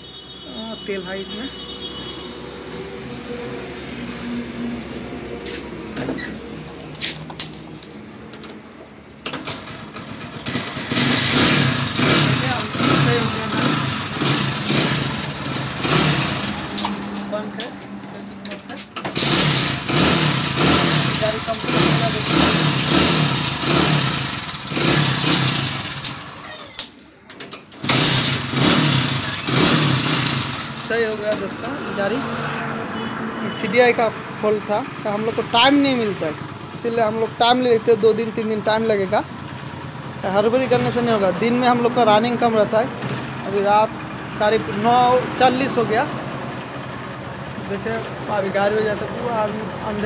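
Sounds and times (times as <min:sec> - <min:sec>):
motorcycle engine running: 0:09.4 - 0:17.8, 0:19.1 - 0:26.6, 0:27.8 - 0:31.6.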